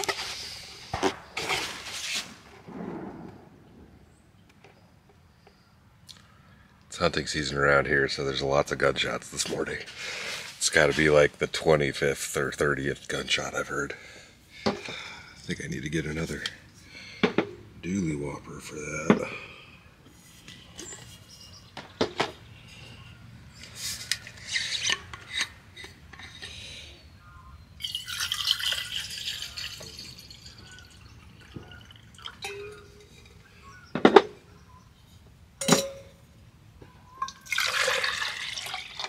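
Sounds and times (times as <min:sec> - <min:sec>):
liquid pouring into cup: 0:27.8 - 0:33.0, 0:37.2 - 0:39.0.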